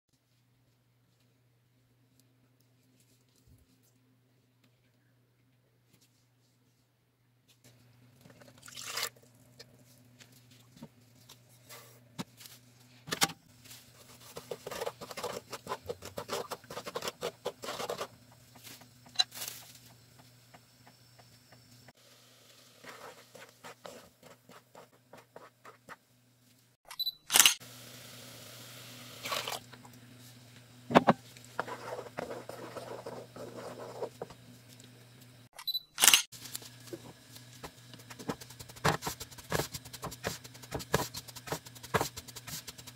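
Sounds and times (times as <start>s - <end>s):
juice poured into metal pot: 8.2s - 9.4s.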